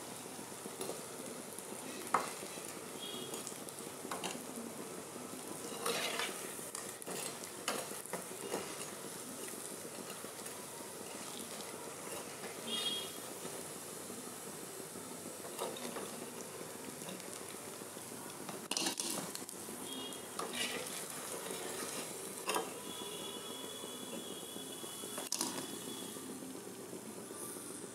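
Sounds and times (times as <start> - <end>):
hot oil sizzling: 0.0 - 27.9.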